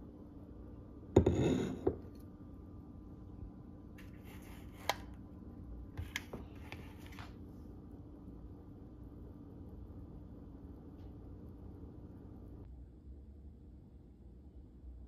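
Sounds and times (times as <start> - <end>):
glass mug knocking on countertop: 1.2 - 2.0.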